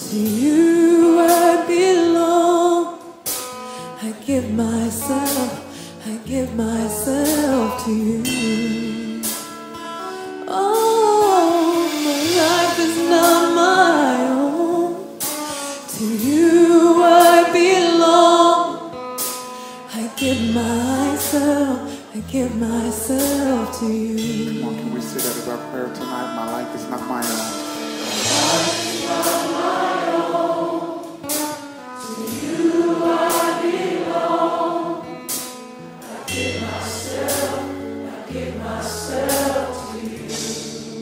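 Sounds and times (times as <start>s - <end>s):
person singing gospel song: 0.0s - 3.0s, 10.2s - 15.1s, 15.9s - 18.9s, 19.8s - 31.2s, 32.0s - 35.2s, 36.0s - 41.0s
instrumental accompaniment with bass: 4.3s - 17.5s, 18.8s - 41.0s.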